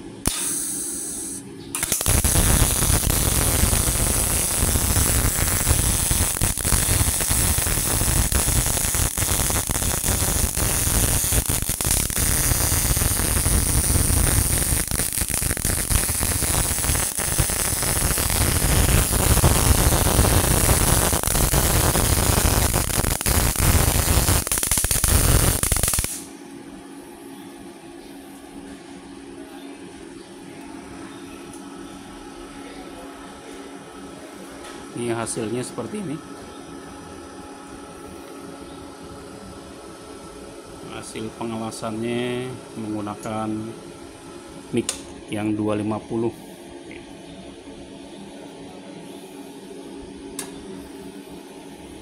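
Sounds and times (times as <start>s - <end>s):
welding arc crackling: 0.2s - 26.3s.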